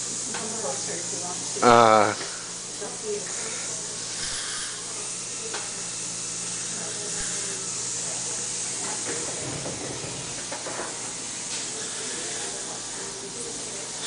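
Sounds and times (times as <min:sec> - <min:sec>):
dental suction tube hissing: 0:03.2 - 0:05.8, 0:06.7 - 0:08.2.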